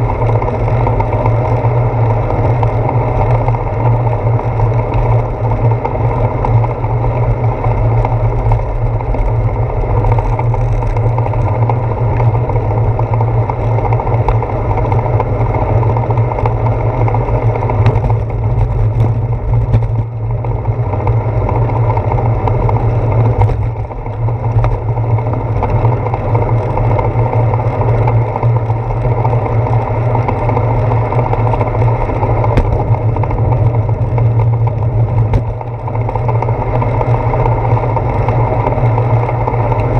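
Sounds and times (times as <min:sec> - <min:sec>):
bicycle road vibration: 0:00.0 - 0:39.9
wind rumble: 0:00.0 - 0:39.9.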